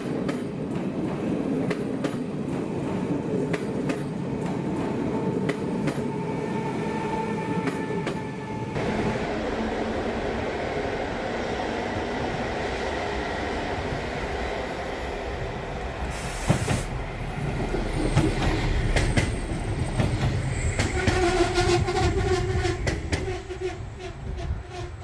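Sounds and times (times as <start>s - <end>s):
train rumbling past: 0.0s - 25.0s
train wheel squeal: 17.6s - 25.0s
train wheels clacking over rail joints: 18.0s - 23.4s.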